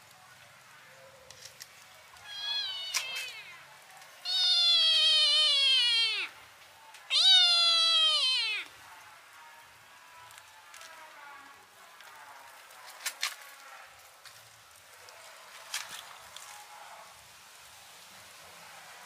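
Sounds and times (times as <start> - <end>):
kitten meowing: 2.2 - 3.6, 4.2 - 6.4, 7.1 - 8.7.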